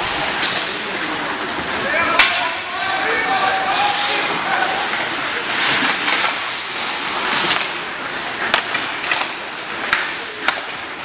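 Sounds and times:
hockey sticks and puck clacking: 0.0 - 1.0, 2.0 - 2.6, 3.2 - 11.0
arena crowd din: 0.0 - 11.0
skate blades scraping ice: 3.3 - 11.0.

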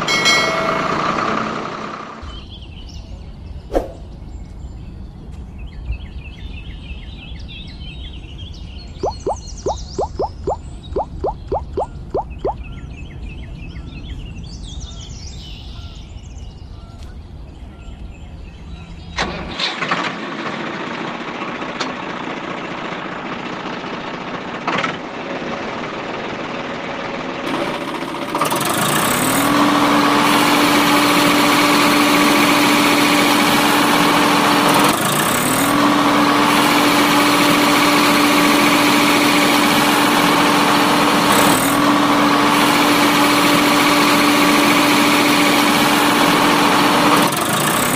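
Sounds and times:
toy electric motor whirring: 41.2 - 41.9, 42.5 - 47.9.

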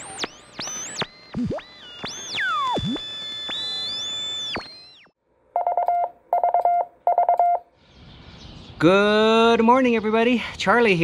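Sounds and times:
gliding synthesizer tones: 0.0 - 5.1
morse code beeps: 5.6 - 7.7.

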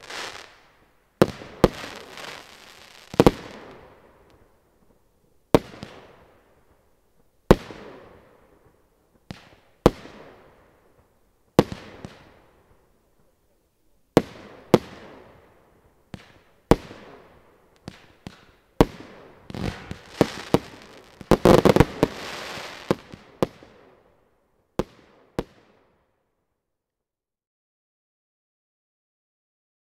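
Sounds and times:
firework crackle: 0.0 - 4.4, 17.7 - 23.8
firework bangs with echo: 17.8 - 23.8.

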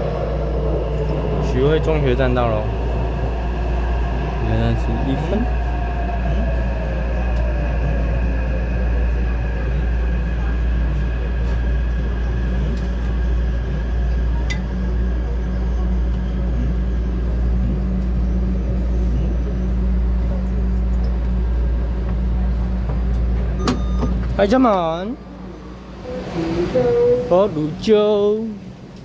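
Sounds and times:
train low rumble: 0.0 - 29.0
train braking whine: 23.6 - 27.8.

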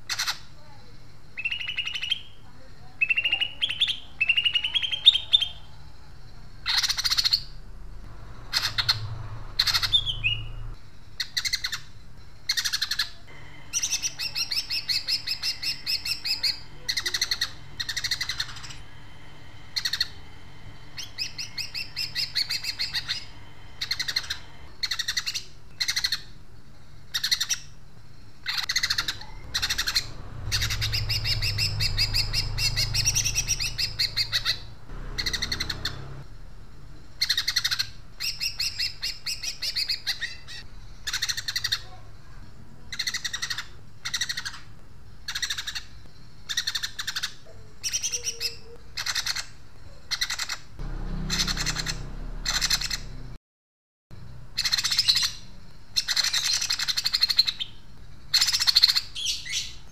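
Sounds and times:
bird singing with rattling runs: 8.4 - 11.8, 28.5 - 36.2, 51.2 - 53.2.

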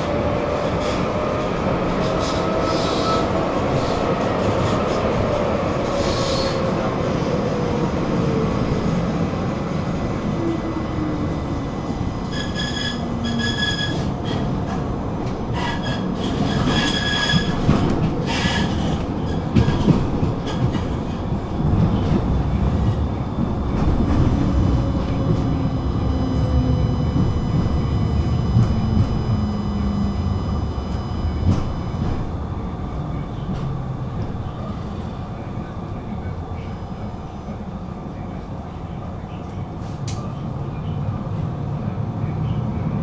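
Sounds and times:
tram motor whine: 0.0 - 43.0
tram rumbling on rails: 0.0 - 43.0
wheels squealing: 12.2 - 14.5.

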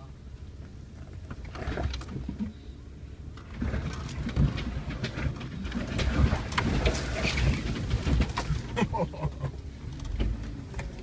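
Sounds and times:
off-road vehicle engine rumbling: 0.0 - 11.0
vehicle body knocking and rattling: 3.4 - 11.0.

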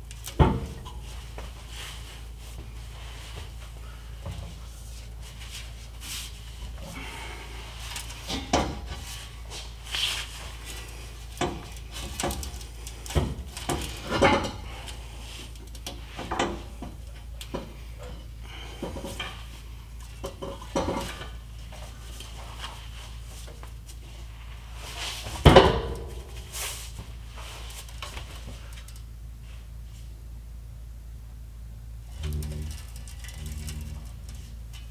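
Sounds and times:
low steady hum: 0.0 - 34.9
metallic clanks and knocks: 8.0 - 9.1, 11.4 - 14.7, 20.1 - 21.4.

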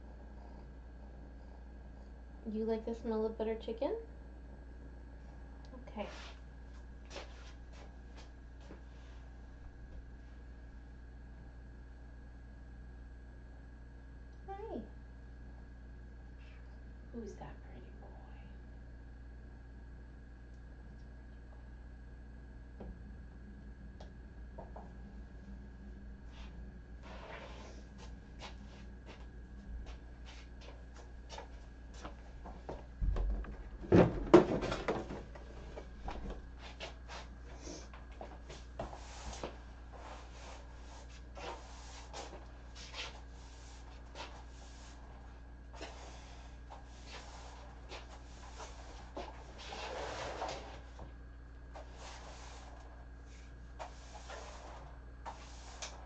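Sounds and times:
faint steady hum: 0.0 - 56.0
thumps and clatter: 32.6 - 36.4.

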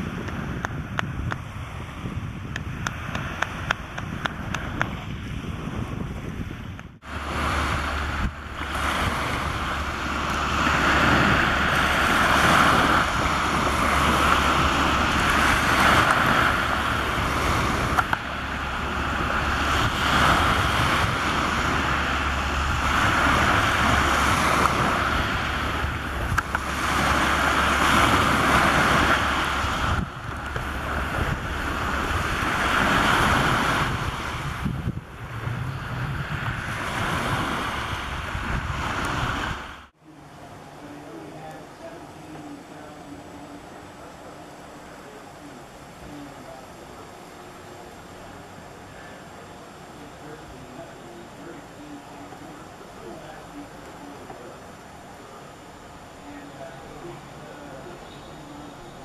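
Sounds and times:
wind rumbling on microphone: 0.0 - 59.0
waves washing onto pebbles: 7.0 - 39.9.

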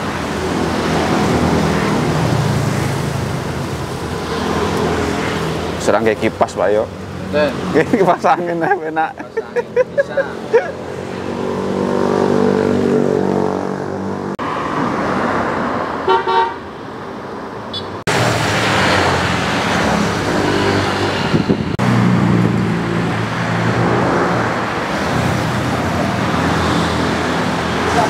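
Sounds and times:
motor vehicles passing: 0.0 - 28.0
car horn toot: 16.1 - 16.6, 17.7 - 18.0.

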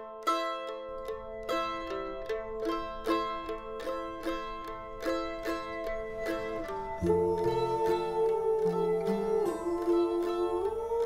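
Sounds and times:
plucked string instrument: 0.0 - 11.0
low held tone: 6.0 - 11.0.

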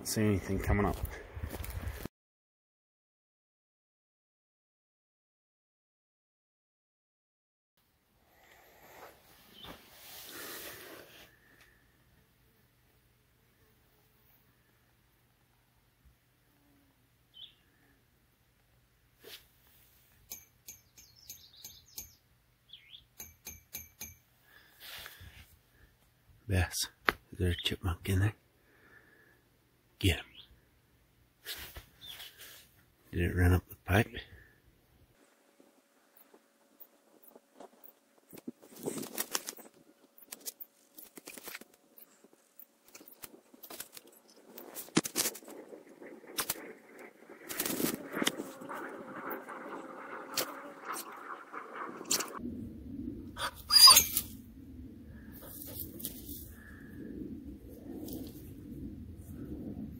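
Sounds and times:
rising and falling squeak: 53.4 - 54.3.

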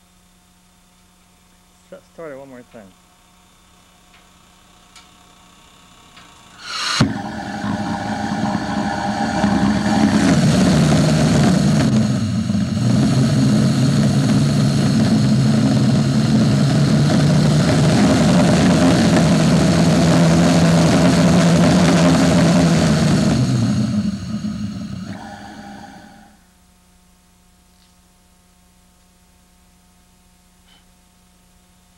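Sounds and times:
jet engine roaring: 6.6 - 26.3.

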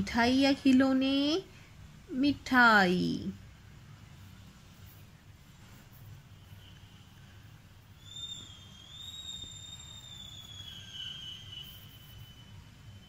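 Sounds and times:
low steady hum: 0.0 - 8.8
faint high whistle-like tone: 6.0 - 13.0.

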